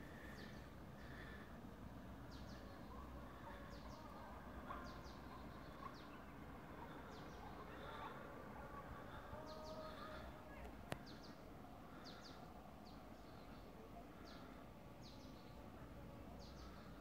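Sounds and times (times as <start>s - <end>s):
low steady background noise: 0.0s - 17.0s.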